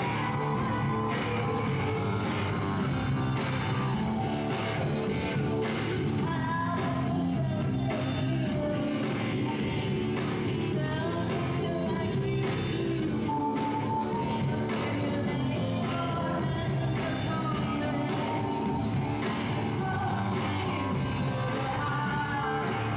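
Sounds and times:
woman singing: 0.0 - 4.3, 5.4 - 22.9
steady beat: 0.0 - 6.4
bass guitar: 0.0 - 22.9.

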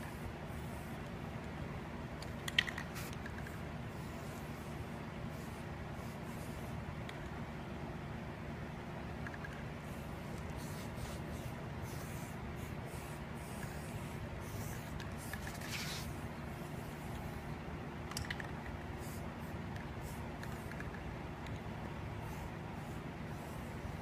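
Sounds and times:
spray paint can hissing: 2.2 - 4.7, 5.3 - 6.7, 9.3 - 17.4, 18.1 - 21.6, 22.2 - 24.0.

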